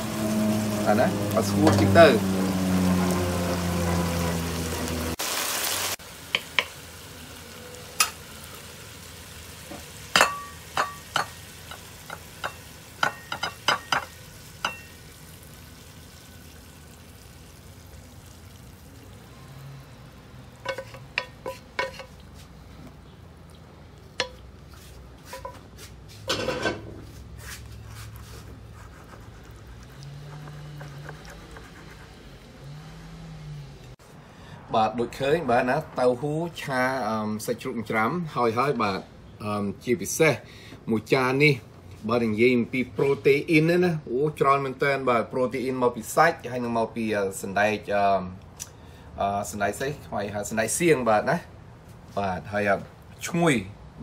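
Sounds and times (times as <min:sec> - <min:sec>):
food sizzling: 0:00.0 - 0:22.6, 0:27.0 - 0:33.6.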